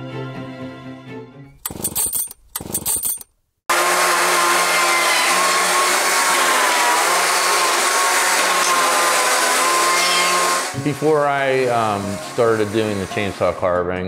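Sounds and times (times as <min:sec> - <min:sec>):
chainsaw cutting wooden log: 0:01.6 - 0:10.8
soft background music: 0:10.8 - 0:14.0.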